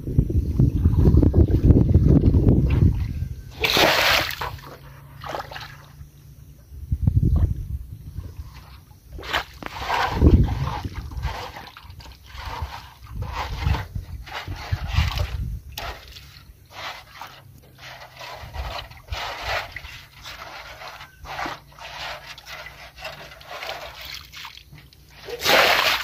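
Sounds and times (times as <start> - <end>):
water sloshing in metal basin: 0.8 - 6.0, 8.3 - 26.0
wet mud squelching: 2.6 - 5.8, 9.2 - 26.0.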